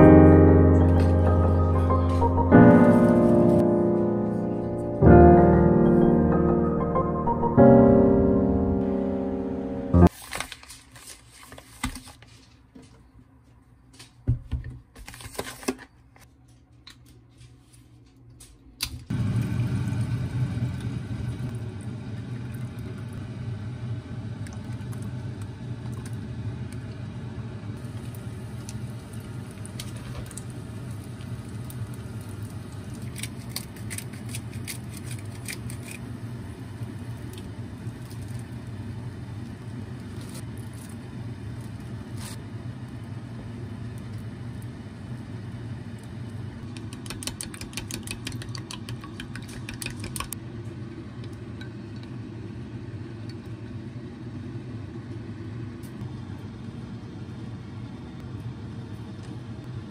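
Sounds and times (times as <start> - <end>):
plastic bag crinkling: 10.1 - 12.2
pot heating rumble and hiss: 18.8 - 59.9.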